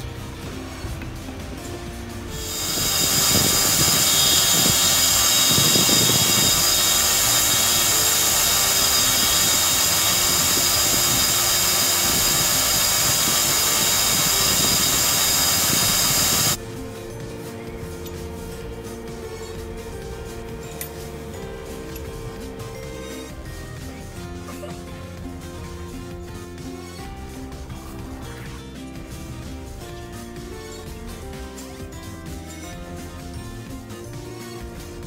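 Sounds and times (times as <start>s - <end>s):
quiet background music: 0.0s - 35.0s
belt grinder grinding: 2.3s - 16.6s.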